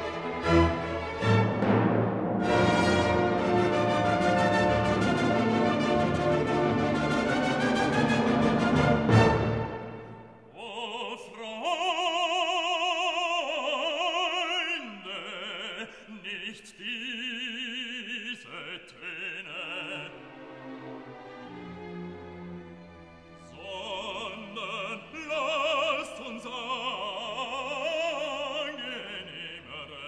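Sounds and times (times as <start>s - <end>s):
orchestral chord: 0.4s - 10.3s
operatic singing with vibrato: 2.4s - 21.6s, 23.3s - 30.0s.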